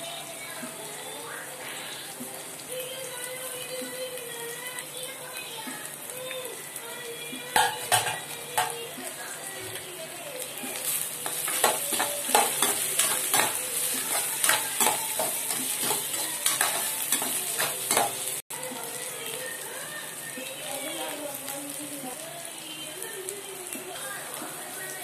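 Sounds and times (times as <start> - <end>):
vegetables sizzling in a pan: 0.0 - 25.0
metal spoon scraping a pan: 7.6 - 8.8, 11.1 - 18.4.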